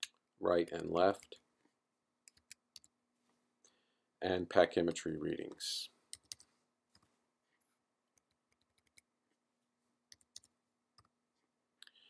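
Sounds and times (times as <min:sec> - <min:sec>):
computer keyboard keystrokes: 0:06.2 - 0:07.0.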